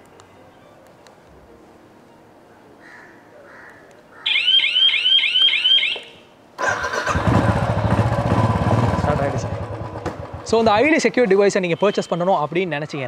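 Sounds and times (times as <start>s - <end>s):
swooping alarm chirps: 4.3s - 6.2s
motorcycle engine running: 6.9s - 11.1s.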